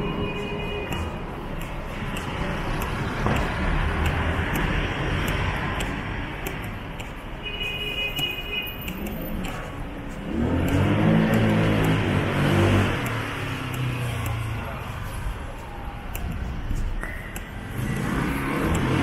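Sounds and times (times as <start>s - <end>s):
high steady tone: 0.0s - 2.2s
street traffic rumble: 0.0s - 19.0s.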